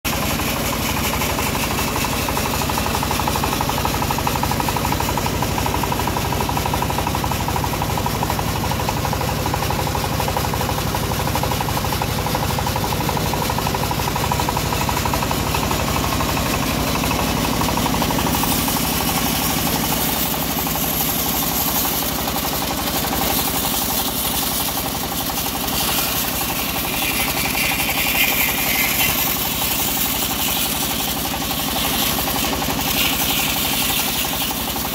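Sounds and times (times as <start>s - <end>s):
diesel engine running: 0.0s - 34.9s
band saw hissing through log: 14.2s - 34.9s.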